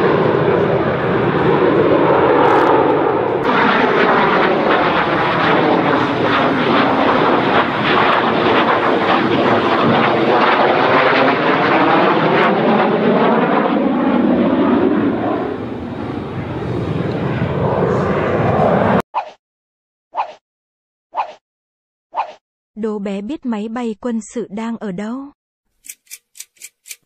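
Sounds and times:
jet aircraft flying past: 0:00.0 - 0:19.0.

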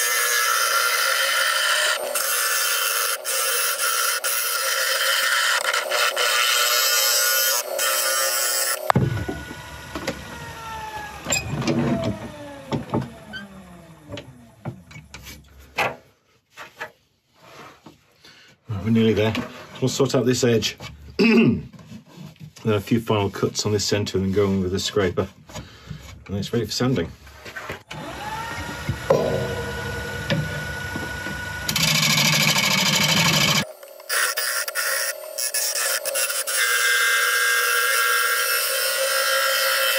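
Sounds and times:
gouge cutting spinning wood: 0:00.0 - 0:11.2, 0:27.9 - 0:39.9
lathe motor whine winding down: 0:06.6 - 0:14.6, 0:27.9 - 0:37.4
metal clanks and knocks: 0:28.8 - 0:32.6.

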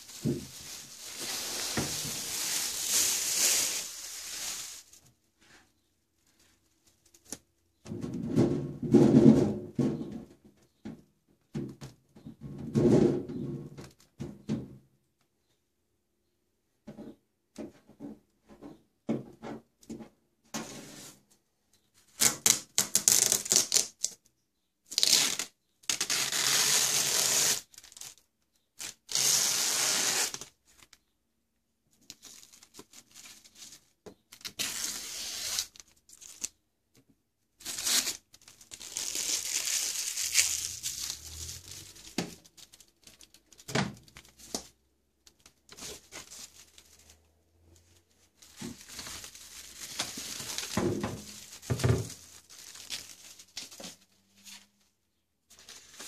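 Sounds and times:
plastic film rustling: 0:00.0 - 0:05.2, 0:37.6 - 0:54.8
adhesive tape ripping: 0:22.2 - 0:24.2, 0:25.0 - 0:28.0, 0:28.8 - 0:30.5, 0:34.4 - 0:36.5, 0:37.6 - 0:43.4.

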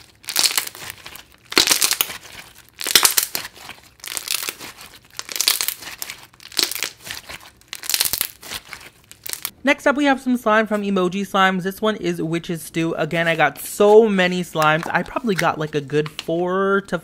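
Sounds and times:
slime squeezed crackling and popping: 0:00.0 - 0:09.5.

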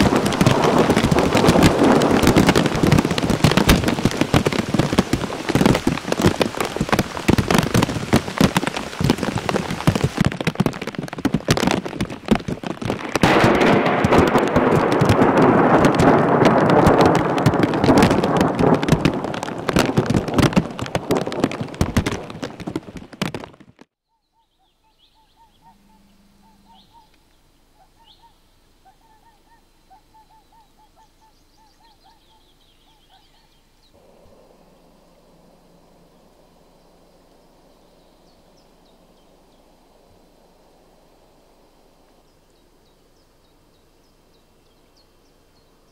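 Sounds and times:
heavy rain hiss: 0:00.0 - 0:22.8, 0:34.0 - 0:44.7
hailstones pelting ground and trees: 0:00.0 - 0:23.9
small birds calling: 0:24.0 - 0:45.9.

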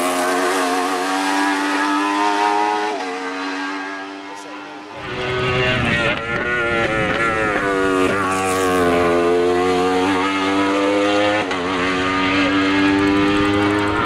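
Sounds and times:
race car engine at high revs: 0:00.0 - 0:14.0.

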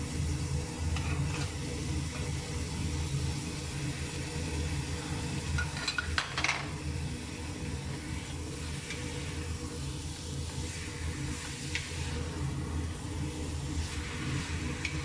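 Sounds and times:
meat sizzling in a pot: 0:00.0 - 0:15.0
steady low hum: 0:00.0 - 0:15.0.

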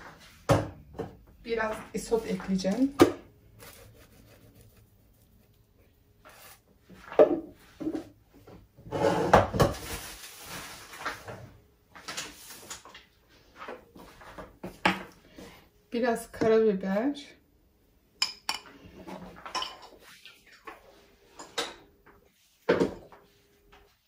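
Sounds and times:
rustling scrape: 0:03.5 - 0:08.1, 0:08.8 - 0:11.4.

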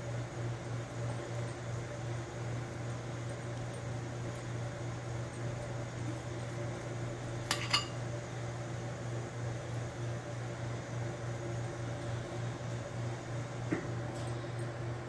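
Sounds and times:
low background hum: 0:00.0 - 0:15.0
metal spoon clinking against bowl: 0:07.5 - 0:08.0.

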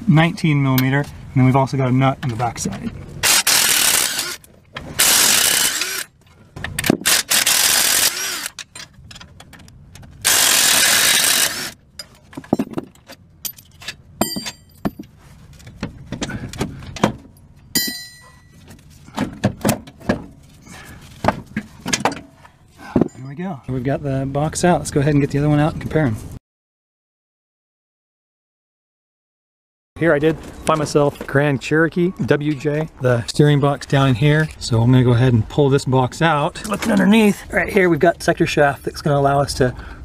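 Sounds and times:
metal bolts clinking and rattling: 0:08.5 - 0:10.3, 0:11.9 - 0:20.2
impact wrench hammering: 0:14.2 - 0:15.0, 0:17.8 - 0:18.3.

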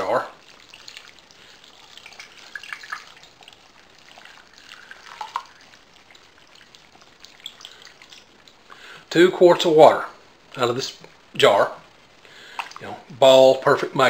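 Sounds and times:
small splashes and drips: 0:00.0 - 0:09.1, 0:12.2 - 0:13.1
water pouring into pot: 0:00.0 - 0:09.1.

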